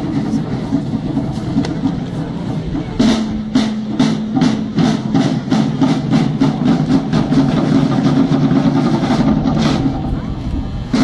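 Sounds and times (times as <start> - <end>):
accented drum strokes: 0.0 - 11.0
side drums rolling: 0.0 - 11.0.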